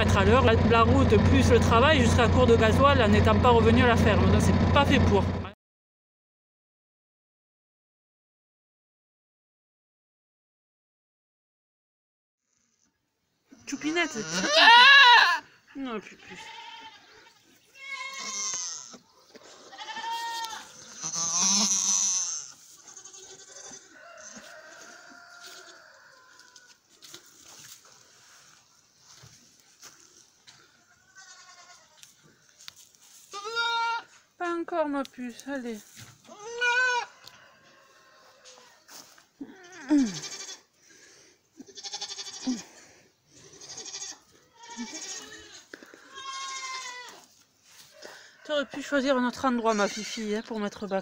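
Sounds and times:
goat bleating: 13.6 - 26.7, 30.7 - 32.1, 33.2 - 34.2, 36.2 - 37.3, 39.4 - 40.7, 41.6 - 47.3, 49.5 - 50.4.

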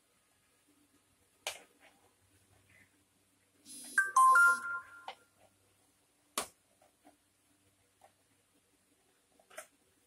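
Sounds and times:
descending chime: 4.0 - 5.1.

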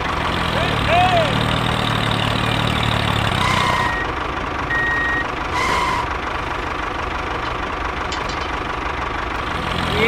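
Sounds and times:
low engine idle drone: 2.4 - 10.0
short electronic beeps: 3.4 - 6.1.

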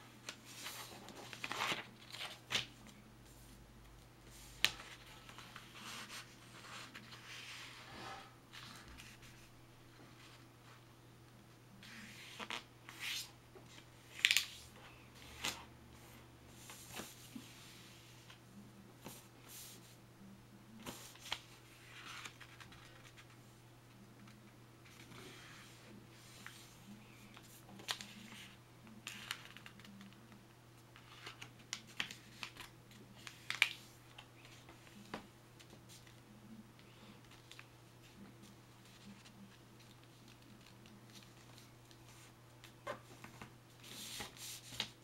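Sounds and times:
faint steady hum: 0.0 - 45.0
paper being folded and creased: 0.2 - 2.7
paper folding and creasing: 0.2 - 2.7, 20.8 - 23.3.

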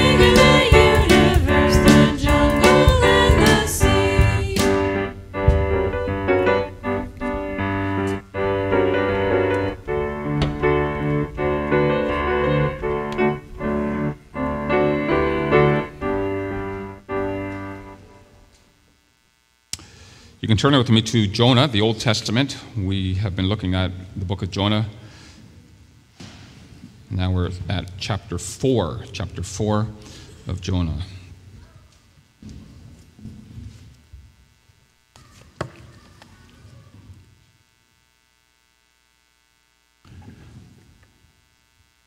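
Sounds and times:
drum kit with cymbals: 0.0 - 6.6
people singing: 0.0 - 6.8
piano playing: 0.0 - 18.3.

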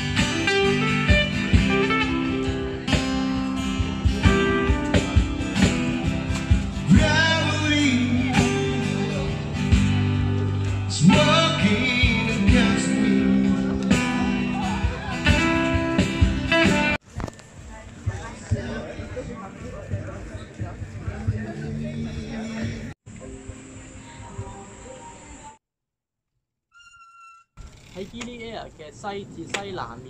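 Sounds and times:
song with guitar and singing: 0.0 - 17.0.

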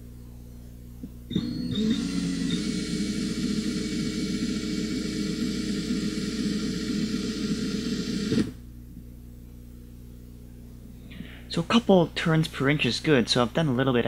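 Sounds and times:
faint low hum: 0.0 - 14.0
cordless drill running: 1.3 - 8.6.

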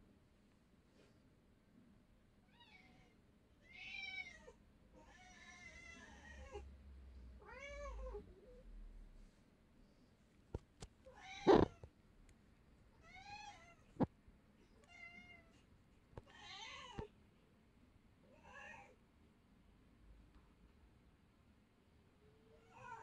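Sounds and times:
cat meowing: 11.2 - 11.8.

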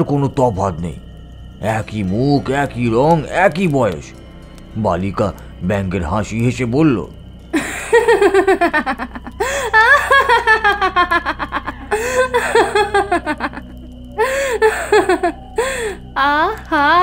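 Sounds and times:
woman laughing mockingly: 7.6 - 16.0.

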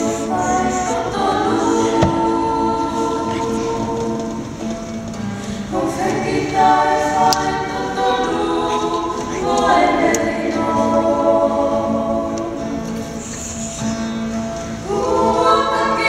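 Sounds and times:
voices singing a hymn: 0.0 - 16.0
strummed acoustic guitar: 11.6 - 16.0.

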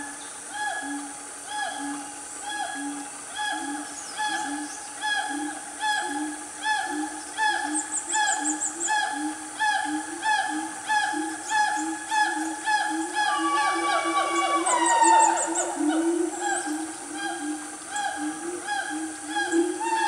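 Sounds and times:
siamangs whooping in chorus: 13.1 - 16.8.

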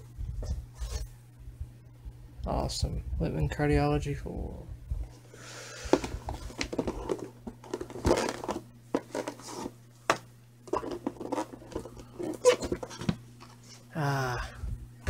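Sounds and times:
cardboard rustling and scraping: 0.4 - 1.1, 5.9 - 13.8.

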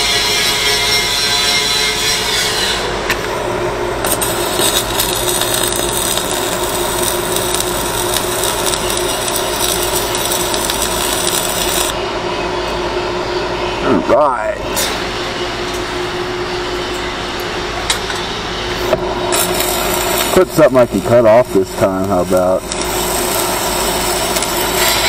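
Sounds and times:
arc welding crackling: 0.1 - 12.0, 14.7 - 25.0.

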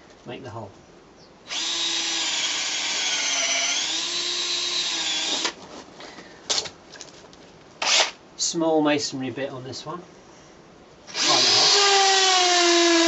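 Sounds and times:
cordless drill boring into wood: 1.5 - 5.6, 7.8 - 8.2, 11.1 - 13.0.

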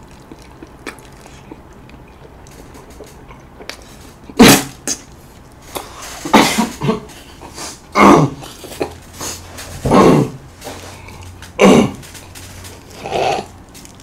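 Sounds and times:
man coughing hard: 6.2 - 7.2, 11.6 - 12.0.

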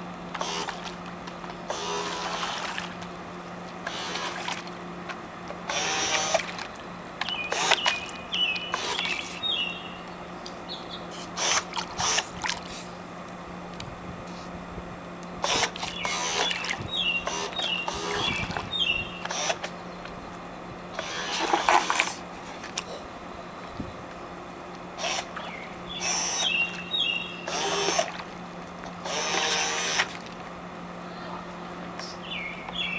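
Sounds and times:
propellers churning water: 0.0 - 10.3, 11.0 - 32.9
steady low hum: 0.0 - 32.9
small electric motors whirring: 0.3 - 1.0, 1.6 - 3.1, 3.8 - 4.7, 5.5 - 6.6, 7.2 - 9.5, 11.1 - 12.9, 15.4 - 19.8, 20.9 - 22.3, 25.0 - 28.2, 28.9 - 30.2.

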